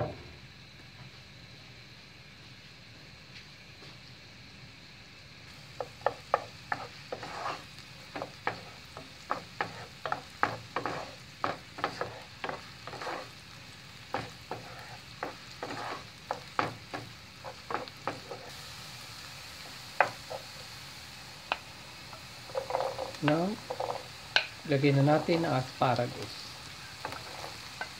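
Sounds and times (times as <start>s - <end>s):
onion sizzling in a frying pan: 0.0s - 27.9s
wooden spoon scraping a pan: 5.8s - 13.5s, 14.1s - 18.6s, 22.1s - 27.9s.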